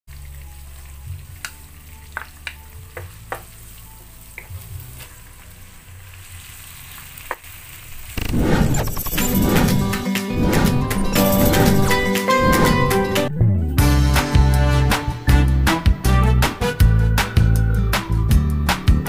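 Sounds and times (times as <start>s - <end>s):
onion sizzling in oil: 0.1s - 9.1s
loud music: 9.6s - 19.0s.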